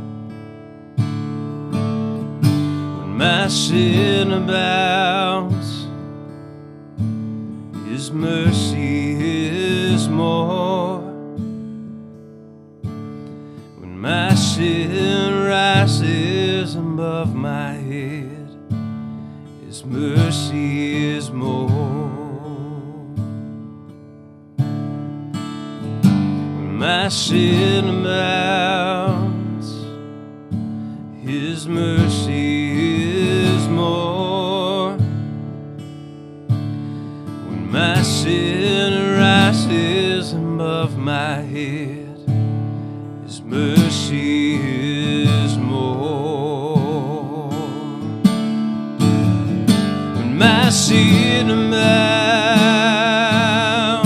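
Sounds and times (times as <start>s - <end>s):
strummed acoustic guitar: 0.0s - 54.0s
man singing: 3.0s - 6.0s, 7.8s - 11.3s, 13.8s - 18.6s, 19.6s - 23.3s, 26.6s - 29.9s, 31.2s - 35.2s, 37.4s - 42.4s, 43.2s - 48.3s, 49.9s - 54.0s.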